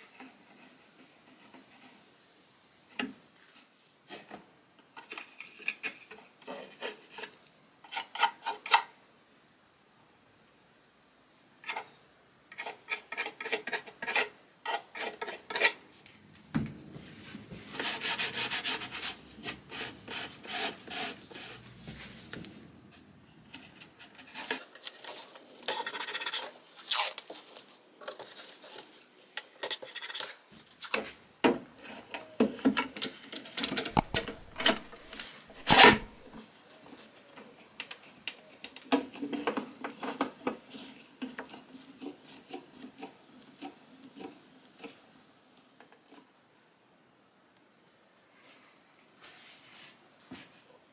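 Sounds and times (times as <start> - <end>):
metal knife scraping glue: 12.5 - 15.8, 24.2 - 26.6
masking tape being applied: 23.6 - 28.9, 33.9 - 36.3.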